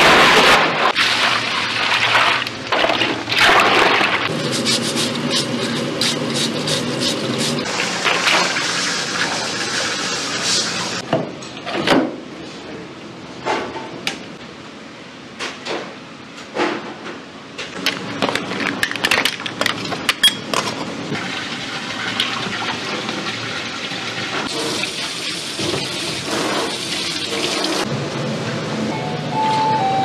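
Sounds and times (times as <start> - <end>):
water rushing into crate: 0.0 - 4.3.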